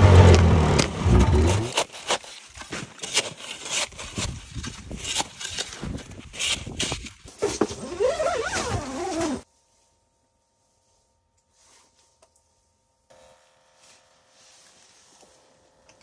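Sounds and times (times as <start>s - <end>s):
snow shovel crunching and scraping: 0.0s - 9.5s.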